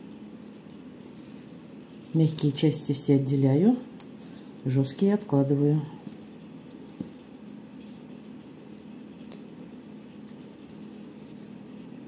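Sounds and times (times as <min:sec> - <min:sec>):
steady low hum: 0:00.0 - 0:12.0
leaves snapping and rustling: 0:06.0 - 0:12.0.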